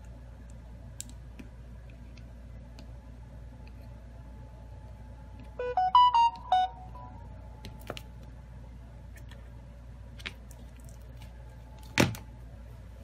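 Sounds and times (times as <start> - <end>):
faint steady hum: 0.0 - 13.0
short electronic notes chime: 5.6 - 7.2.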